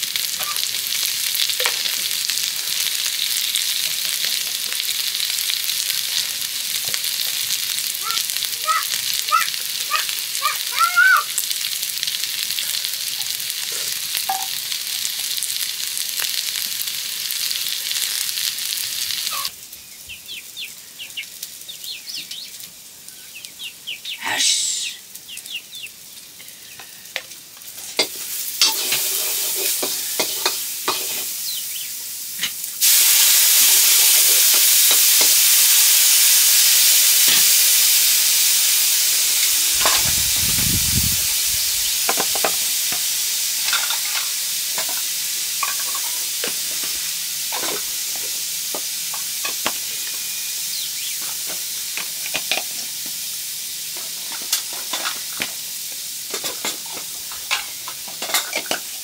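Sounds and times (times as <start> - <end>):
food frying in hot oil: 0.0 - 59.0
utensil scraping a pan: 28.0 - 31.4.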